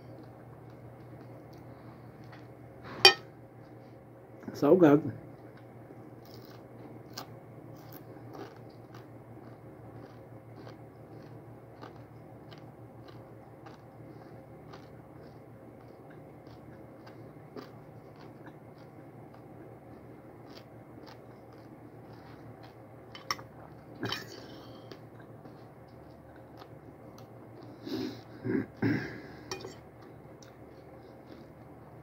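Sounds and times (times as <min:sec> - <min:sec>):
quiet chewing: 0:00.0 - 0:02.7, 0:05.3 - 0:32.0
fork clinking and scraping plate: 0:03.0 - 0:03.2, 0:29.5 - 0:29.8.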